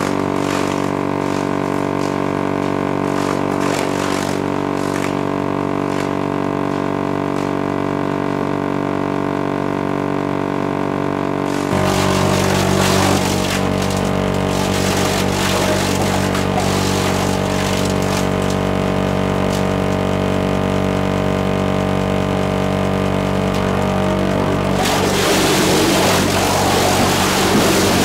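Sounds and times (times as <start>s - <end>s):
machinery drone: 0.0s - 28.0s
logs knocking on conveyor: 11.5s - 20.2s
rushing water: 11.7s - 18.6s, 24.6s - 28.0s.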